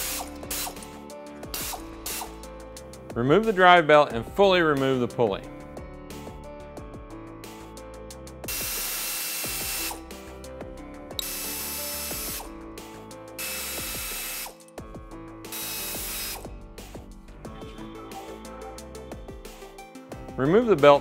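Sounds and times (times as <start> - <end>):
pneumatic air ratchet: 0.0 - 2.5, 8.5 - 10.0, 11.2 - 12.5, 13.4 - 14.7, 15.5 - 16.5.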